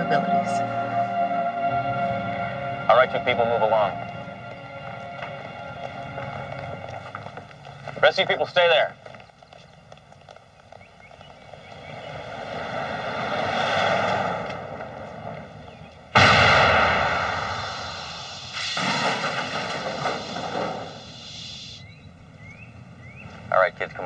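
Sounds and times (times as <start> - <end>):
car speeding away: 11.6 - 15.8
loud exhaust blast: 16.1 - 21.8.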